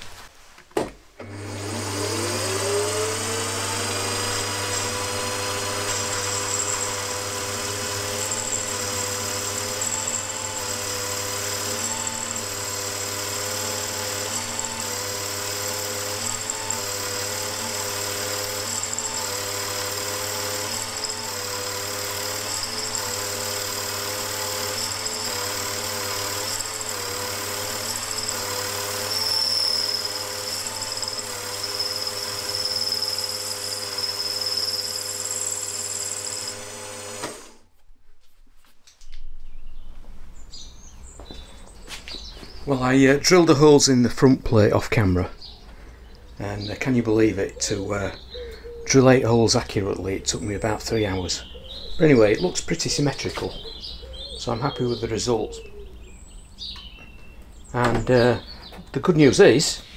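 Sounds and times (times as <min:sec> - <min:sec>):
milling machine whining: 0:01.2 - 0:37.7.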